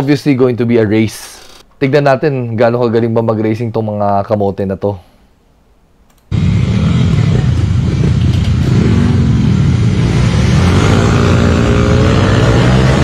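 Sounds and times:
motorcycle engines accelerating: 0:06.3 - 0:13.0.

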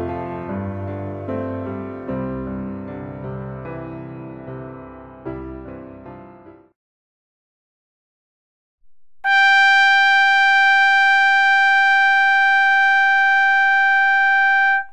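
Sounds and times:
long horn blast: 0:09.2 - 0:14.9.

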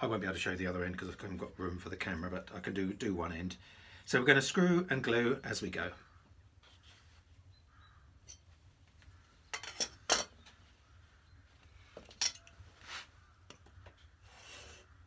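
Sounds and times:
metal tools clinking on plywood: 0:09.5 - 0:10.5, 0:12.0 - 0:12.6.

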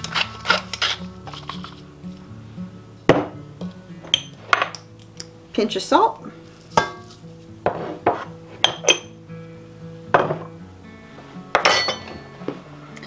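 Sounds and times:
soft background music: 0:00.0 - 0:13.0
kitchenware clinking on countertop: 0:11.6 - 0:12.2.

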